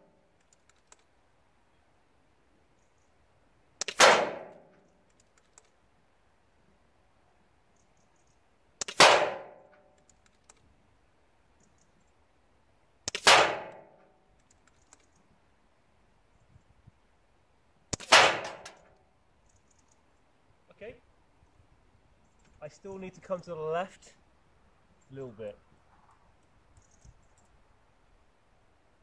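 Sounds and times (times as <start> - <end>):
faint clicks: 0.3 - 1.1, 4.6 - 5.8, 9.7 - 10.7, 11.6 - 12.2, 14.3 - 15.3, 18.6 - 20.2, 25.9 - 27.6
air rifle shots: 3.8 - 4.7, 8.8 - 9.7, 13.1 - 13.9, 17.9 - 18.8.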